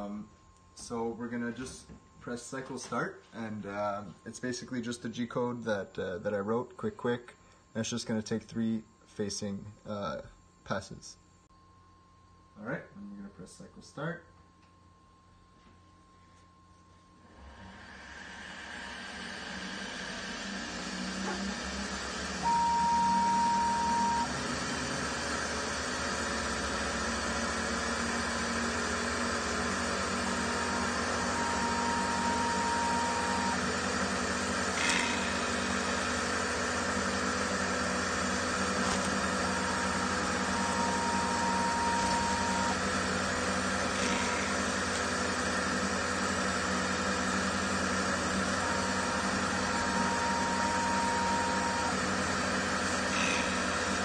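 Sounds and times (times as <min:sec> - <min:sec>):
lathe running and cutting: 0:17.4 - 0:54.0
high steady tone: 0:22.4 - 0:24.4, 0:30.4 - 0:34.0, 0:39.4 - 0:43.0, 0:48.8 - 0:52.3.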